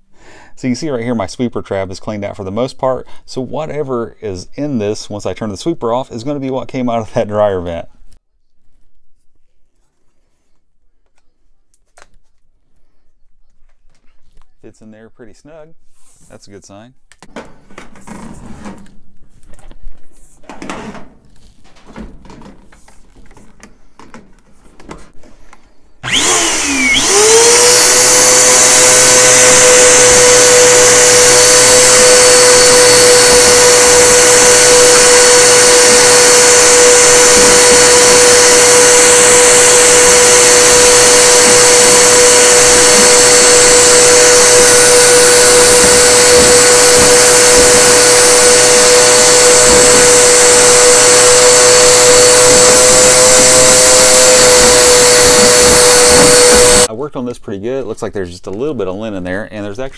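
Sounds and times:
vacuum cleaner motor running: 26.0 - 56.9.

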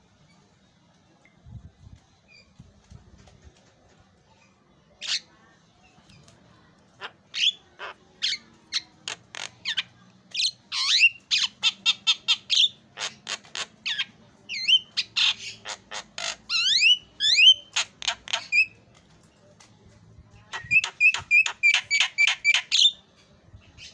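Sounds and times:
bird squawking and whistling: 13.9 - 18.8, 20.5 - 23.0.

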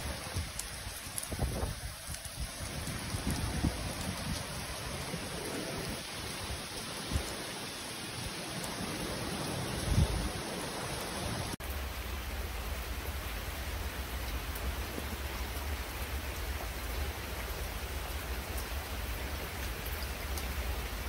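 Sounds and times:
steady rain falling: 0.0 - 21.0.

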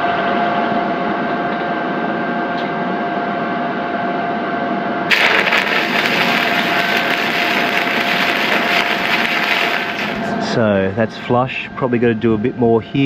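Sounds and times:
welding arc frying and humming: 5.1 - 10.6.

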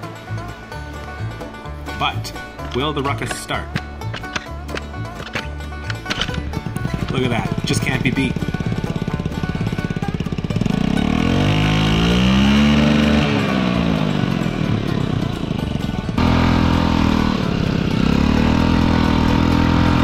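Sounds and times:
scooter engine revving: 5.9 - 20.0.

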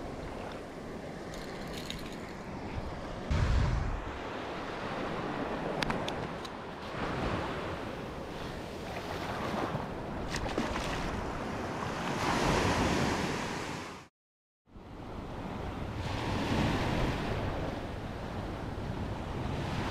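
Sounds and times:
wind buffeting microphone: 2.5 - 6.4.

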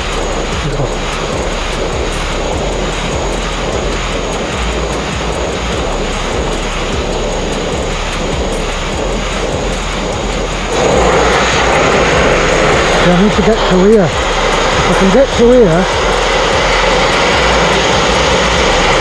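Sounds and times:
sandblaster hissing on steel: 0.0 - 19.0.

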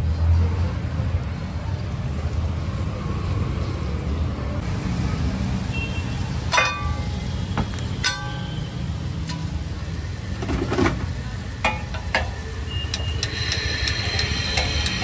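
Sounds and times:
street traffic rumble: 0.0 - 15.0
faint clink: 6.5 - 7.2, 8.0 - 8.6
metal utensil striking pan: 6.5 - 7.2, 8.0 - 8.6, 11.6 - 12.4.

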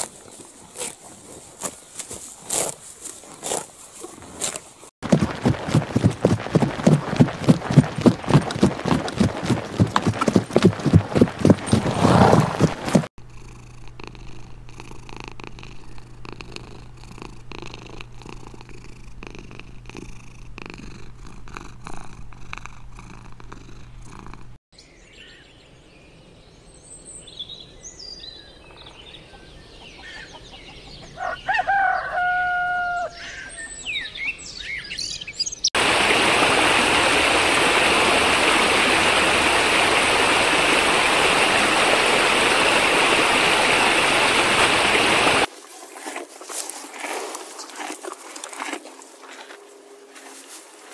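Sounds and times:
cat purring: 5.3 - 24.6
birds chirping: 24.8 - 35.8.

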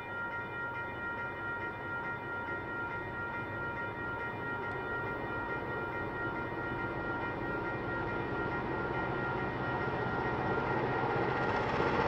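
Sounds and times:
diesel locomotive engine rumble: 4.7 - 12.0
high whine: 8.2 - 12.0.

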